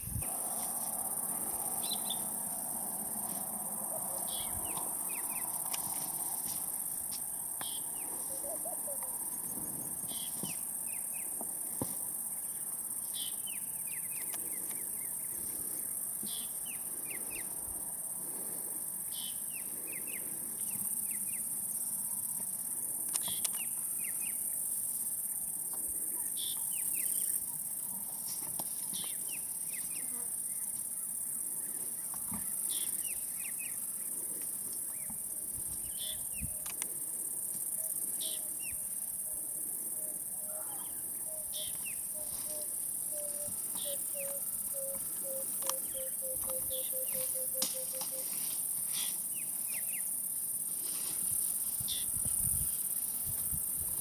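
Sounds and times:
high-pitched insect drone: 0:35.5 - 0:50.1.

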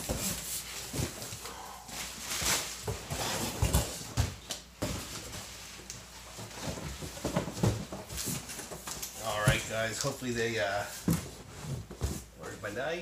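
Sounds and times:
cardboard boxes scraping and knocking: 0:00.0 - 0:05.6, 0:06.2 - 0:09.9, 0:10.6 - 0:12.3.

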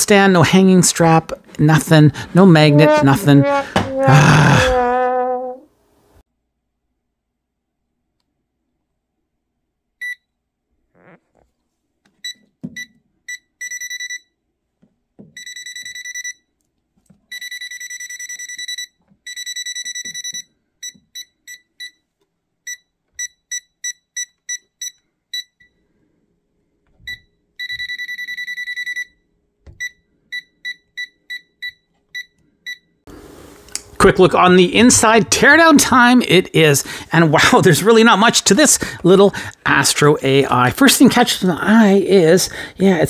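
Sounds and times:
held buzzer tones: 0:02.4 - 0:04.8.

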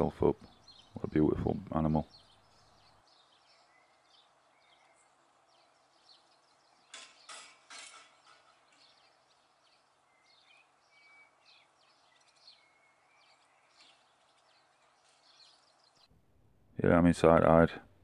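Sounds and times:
birds chirping and whistling: 0:00.0 - 0:01.1, 0:02.0 - 0:16.1.

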